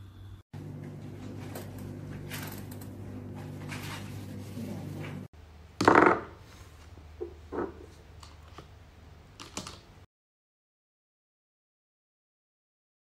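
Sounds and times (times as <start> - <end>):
steady low hum: 0.0 - 5.5.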